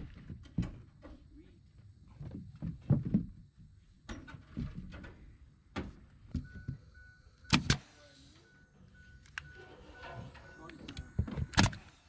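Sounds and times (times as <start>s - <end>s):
pneumatic nailer firing: 7.5s - 8.0s, 11.5s - 12.0s.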